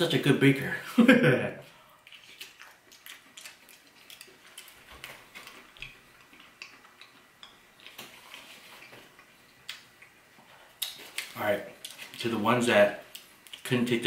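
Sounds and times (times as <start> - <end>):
chewing: 1.9 - 12.2.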